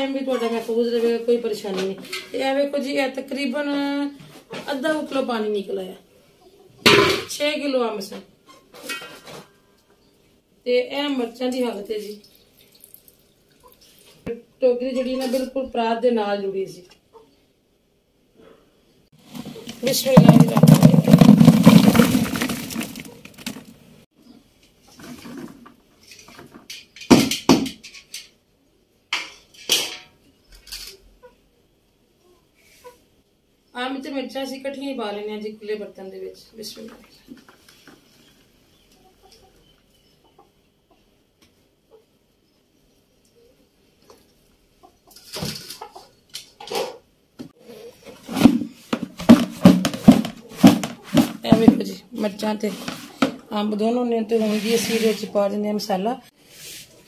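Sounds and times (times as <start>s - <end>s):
chillies rustling and knocking in tub: 19.2s - 23.9s, 48.0s - 55.9s
mango pieces clattering into bucket: 19.3s - 23.8s, 48.3s - 51.8s.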